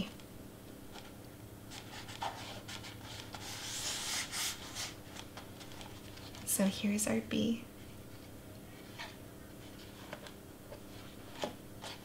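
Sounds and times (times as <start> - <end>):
hands rubbing cardstock: 1.7 - 5.0.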